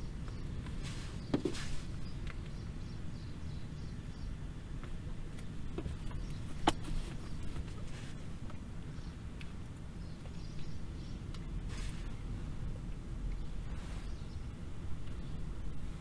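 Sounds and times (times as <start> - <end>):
car cabin rumble: 0.0 - 16.0
short rustle: 0.7 - 2.0, 6.4 - 8.3, 11.6 - 12.2.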